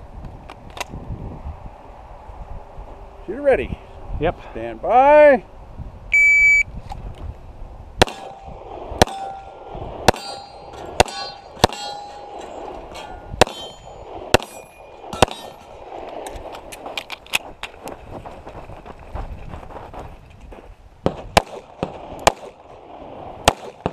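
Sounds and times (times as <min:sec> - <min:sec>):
pistol shots: 0:08.0 - 0:12.4, 0:13.4 - 0:15.7, 0:21.1 - 0:22.7, 0:23.4 - 0:23.9
steel targets clanging: 0:08.0 - 0:16.3.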